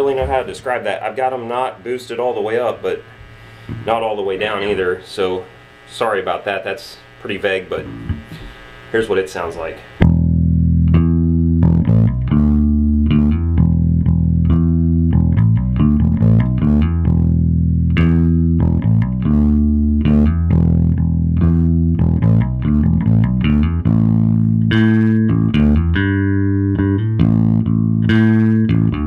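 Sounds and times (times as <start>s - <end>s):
bass guitar riff: 7.7s - 8.6s, 9.9s - 29.0s.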